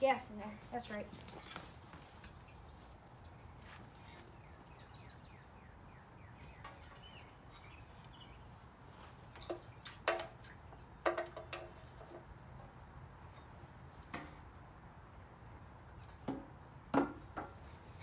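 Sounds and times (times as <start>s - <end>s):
faint bird chirps: 3.9s - 8.5s.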